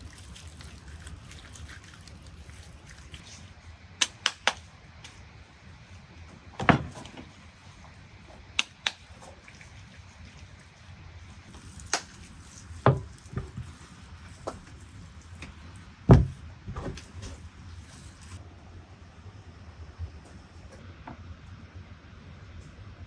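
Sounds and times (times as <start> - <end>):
low steady background noise: 0.0 - 23.0
heavy thuds on wooden board: 16.1 - 17.0.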